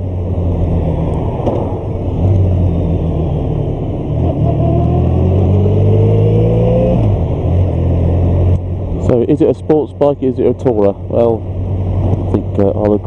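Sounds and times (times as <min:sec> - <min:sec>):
motorcycle engine accelerating: 0:00.0 - 0:09.3.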